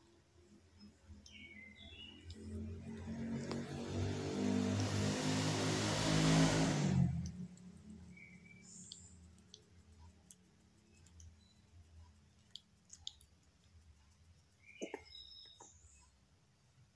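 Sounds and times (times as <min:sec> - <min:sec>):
kitten licking clicks: 0:02.2 - 0:05.0, 0:07.0 - 0:07.9, 0:08.6 - 0:15.6.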